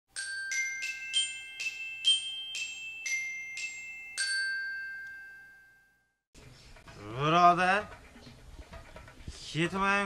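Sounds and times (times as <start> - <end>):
bright struck notes jingle: 0.2 - 6.1.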